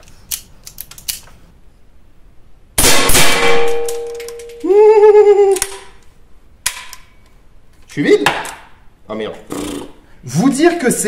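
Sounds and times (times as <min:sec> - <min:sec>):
rifle shots: 0:02.8 - 0:04.0.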